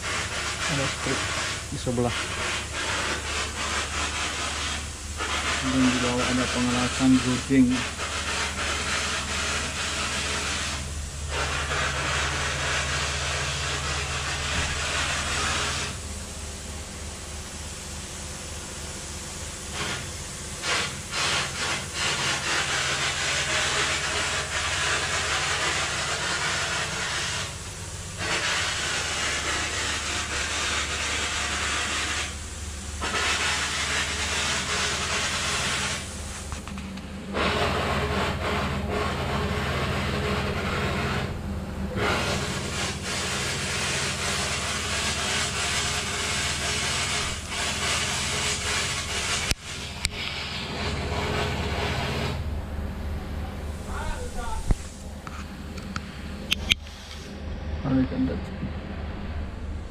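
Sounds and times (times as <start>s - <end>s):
hissing rush of air: 0.0s - 57.5s
excavator engine hum: 31.0s - 59.9s.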